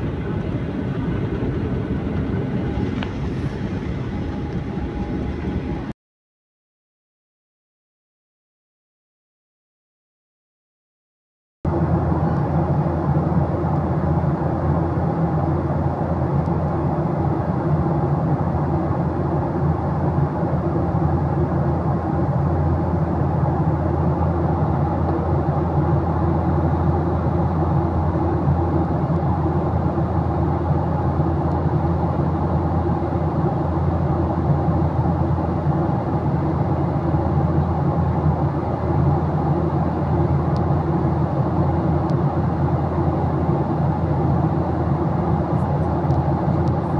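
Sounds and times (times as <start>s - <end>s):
airflow past fuselage: 0.0s - 5.9s
steady hums: 0.0s - 5.9s, 11.7s - 46.9s
jet engine drone: 0.0s - 6.0s, 11.7s - 46.9s.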